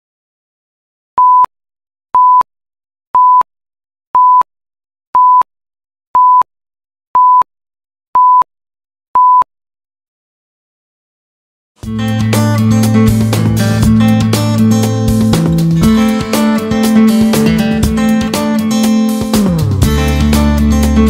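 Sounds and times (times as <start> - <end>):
short steady-tone beeps: 2.2 - 2.5, 3.2 - 3.5, 4.2 - 4.5, 5.2 - 5.5, 6.2 - 6.5, 7.2 - 7.5, 8.2 - 8.5, 9.2 - 9.5.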